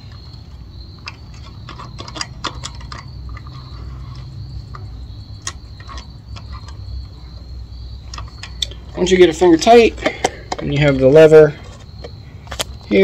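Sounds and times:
small metal parts clicking: 1.0 - 7.2, 8.0 - 8.8.

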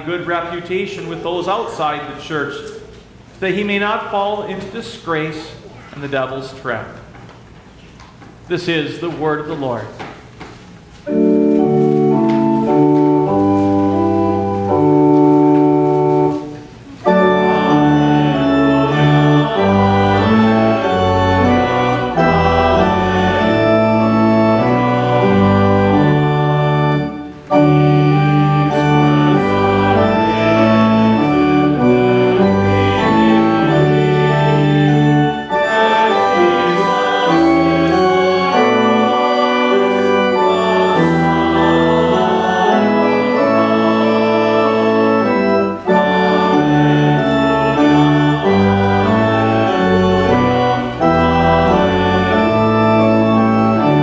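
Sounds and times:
church organ playing held chords: 11.0 - 54.0.

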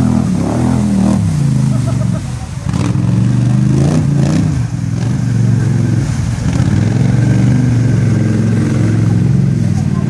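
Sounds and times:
atv engine under throttle: 0.0 - 10.0
water splashing around wheels: 0.0 - 10.0.

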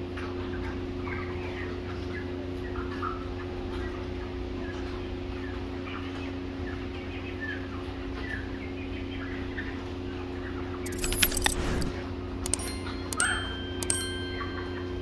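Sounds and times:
jingly chime and click effect: 10.9 - 15.0.

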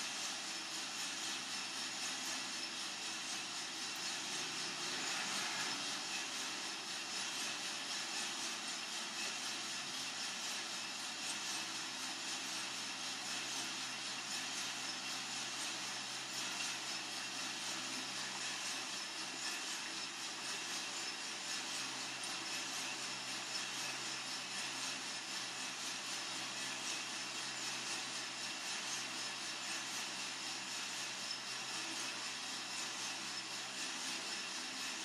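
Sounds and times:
motor and fan hum: 0.0 - 29.1
coffee beans tumbling in drum: 1.2 - 11.0.

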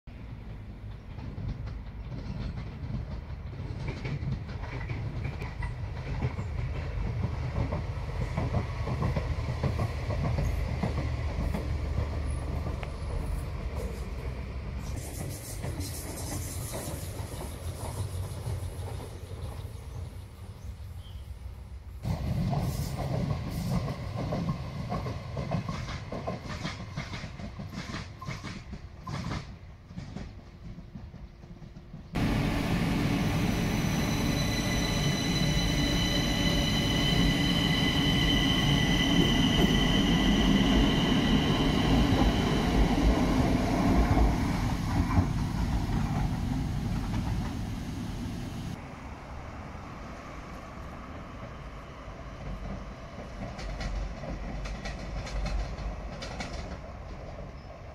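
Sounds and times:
train rumble: 0.1 - 57.9
train wheels clicking on rail joints: 0.3 - 20.0, 22.0 - 47.8, 52.3 - 57.9.

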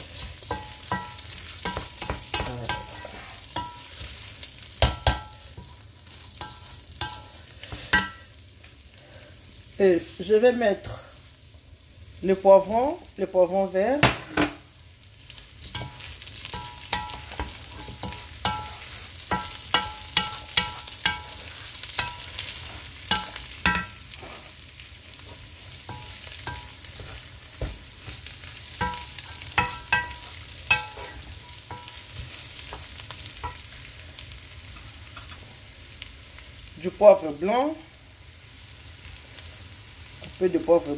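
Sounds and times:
frying sizzle: 0.0 - 40.9
wooden spoon knocking a pan: 0.5 - 3.8, 4.8 - 5.7, 15.7 - 21.4, 22.0 - 22.4, 23.1 - 24.0, 25.9 - 28.2, 28.8 - 33.6.

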